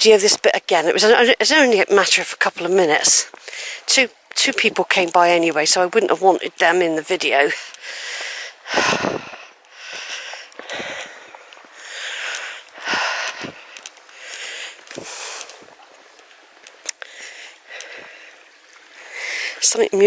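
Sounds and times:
small brook rushing: 0:00.0 - 0:20.0
footsteps on grassy dirt path: 0:07.4 - 0:16.8.

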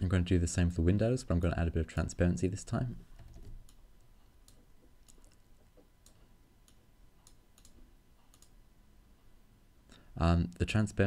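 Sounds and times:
computer mouse clicks: 0:03.2 - 0:03.8, 0:04.4 - 0:08.6.

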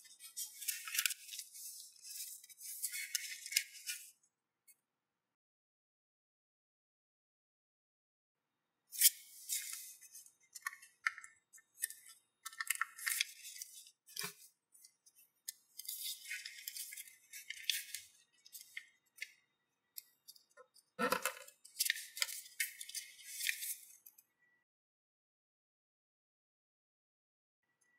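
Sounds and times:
paper rustling and crinkling: 0:00.0 - 0:04.1, 0:09.0 - 0:11.1, 0:11.7 - 0:18.9, 0:21.0 - 0:24.0.

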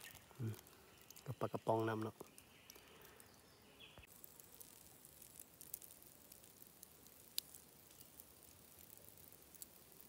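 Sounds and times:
small clicks and crackles: 0:00.0 - 0:03.4, 0:04.0 - 0:10.0
low outdoor hiss: 0:00.0 - 0:10.0.

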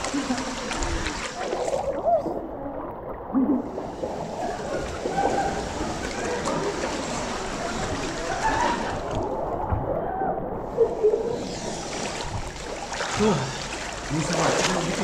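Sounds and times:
river water splashing and gurgling: 0:00.0 - 0:10.0, 0:10.6 - 0:15.0
flowing water rushing: 0:00.0 - 0:15.0.

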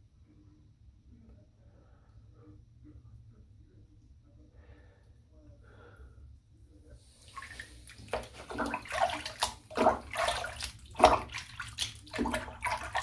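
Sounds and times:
water splashing in a sink: 0:07.1 - 0:13.0.

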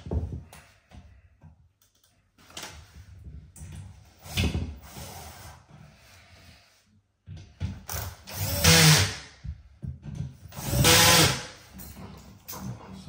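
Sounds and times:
power drill motor whirring: 0:10.6 - 0:11.5.

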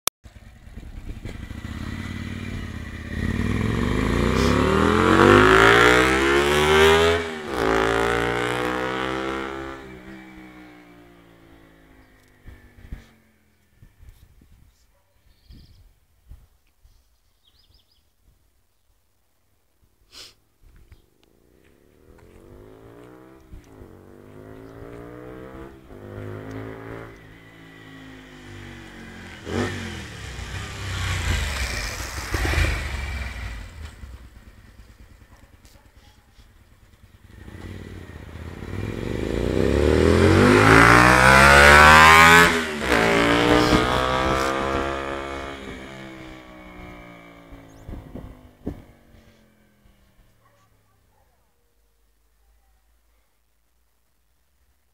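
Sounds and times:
motorcycle engine accelerating: 0:00.2 - 0:13.9, 0:21.3 - 0:50.4.

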